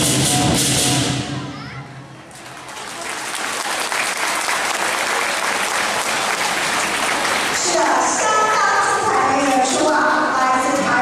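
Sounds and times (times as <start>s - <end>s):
audience applause: 2.4s - 9.6s.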